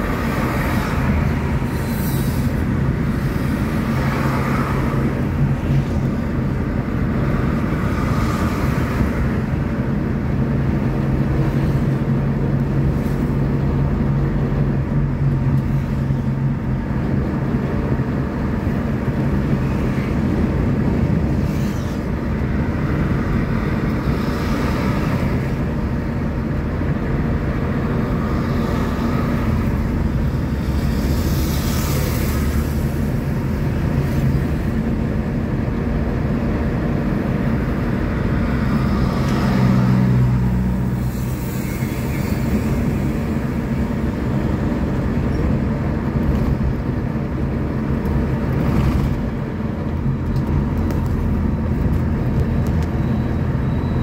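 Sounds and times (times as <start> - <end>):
vehicle engine and road noise: 0.0 - 54.0.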